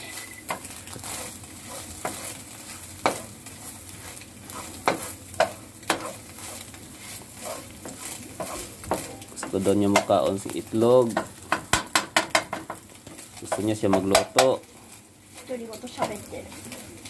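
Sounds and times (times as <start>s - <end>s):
eggs sizzling in a frying pan: 0.0s - 17.0s
wooden spatula scraping a pan: 0.0s - 17.0s
spatula knocking against pan: 8.4s - 10.2s, 11.1s - 12.8s, 13.5s - 14.5s.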